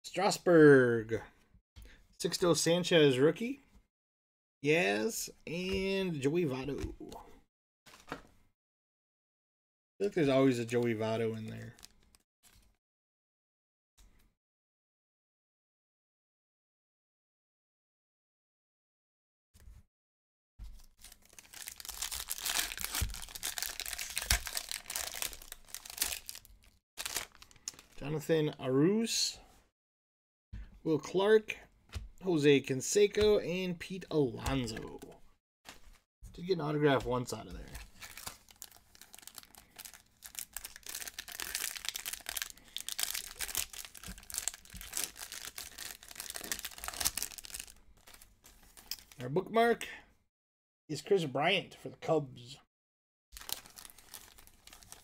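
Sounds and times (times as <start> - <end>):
foil wrapper crinkling: 20.8 - 28.0, 37.6 - 49.2, 53.3 - 55.0.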